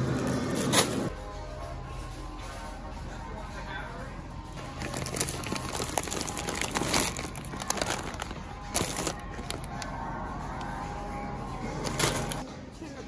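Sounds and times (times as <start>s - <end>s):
paper package crinkling: 4.6s - 9.9s, 11.8s - 12.4s.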